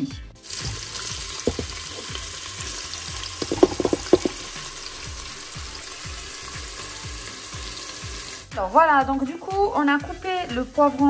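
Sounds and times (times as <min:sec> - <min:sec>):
onion sizzling in hot oil: 0:00.4 - 0:08.6
sharp knocks: 0:01.5 - 0:01.8, 0:03.4 - 0:04.4.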